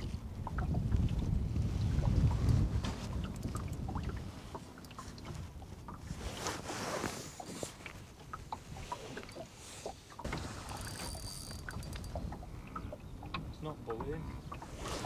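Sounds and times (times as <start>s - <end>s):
wind on microphone: 0.0s - 9.5s
water lapping against boat hull: 0.0s - 15.0s
light ticks and scratches: 2.2s - 15.0s.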